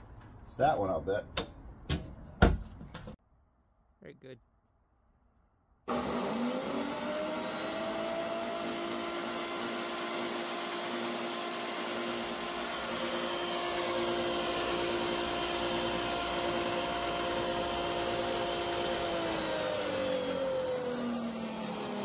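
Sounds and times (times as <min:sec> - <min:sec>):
electric saw motor whining: 0:05.9 - 0:22.0.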